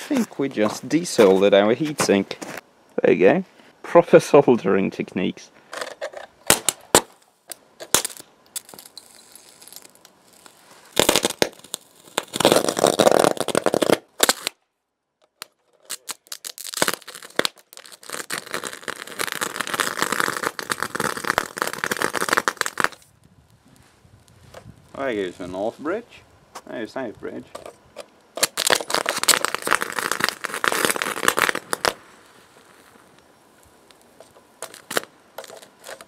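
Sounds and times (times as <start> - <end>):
electric arcing crackle: 6.5 - 14.6, 15.4 - 36.0.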